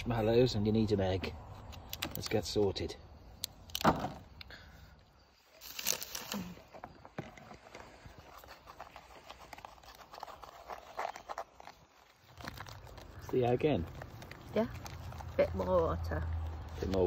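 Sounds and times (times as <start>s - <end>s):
packaging crinkling and tearing: 5.6s - 6.8s, 7.5s - 15.6s.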